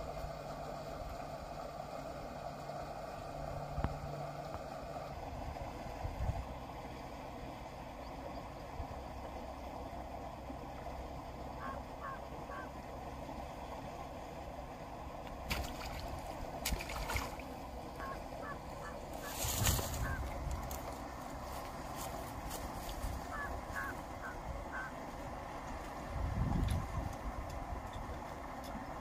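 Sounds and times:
outdoor background noise: 0:00.0 - 0:29.0
bird calling: 0:11.5 - 0:12.8, 0:17.5 - 0:20.4, 0:23.0 - 0:25.1
fish splashing at surface: 0:15.5 - 0:17.6.

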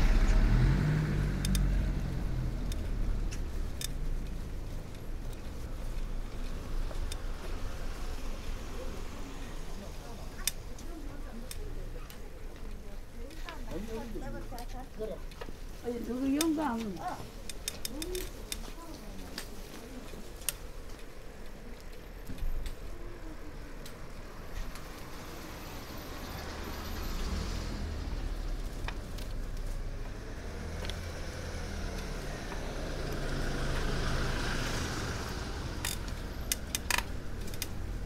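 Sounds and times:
street traffic rumble: 0:00.0 - 0:38.0
vehicles passing: 0:00.0 - 0:38.0
sharp clicks: 0:01.4 - 0:01.7.

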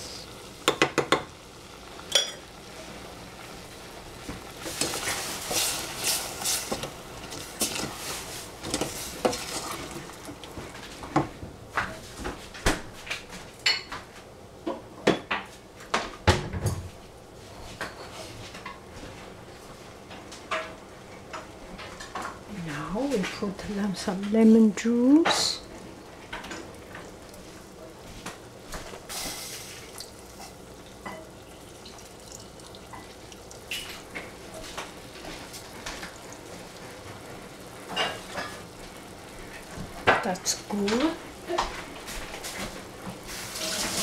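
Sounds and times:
spoon knocking on pan: 0:00.6 - 0:01.3
wooden spoon stirring in saucepan: 0:04.2 - 0:11.4, 0:23.1 - 0:44.0.

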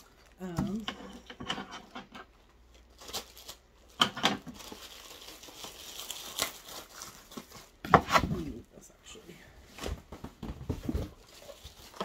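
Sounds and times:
plastic packaging crinkling: 0:00.0 - 0:00.5, 0:02.4 - 0:07.8, 0:10.8 - 0:12.0.

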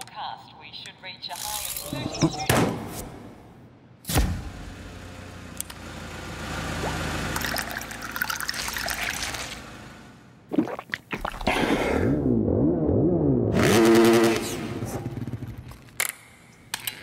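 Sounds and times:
water trickling and gurgling: 0:06.8 - 0:09.5.

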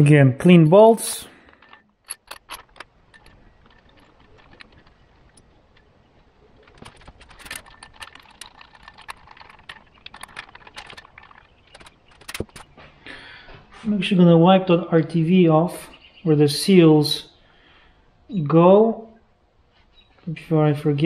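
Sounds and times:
small metal bolts clinking: 0:01.3 - 0:12.8.

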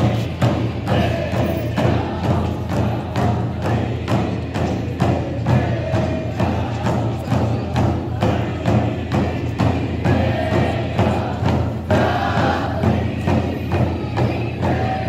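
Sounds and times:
frame drums beating: 0:00.0 - 0:15.0
group of men singing: 0:00.0 - 0:15.0.

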